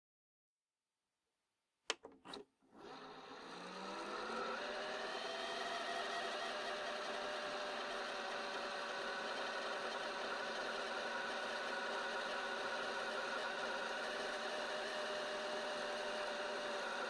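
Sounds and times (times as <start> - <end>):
cassette recorder click: 1.9 - 2.4
tape rewinding whir: 2.0 - 10.9.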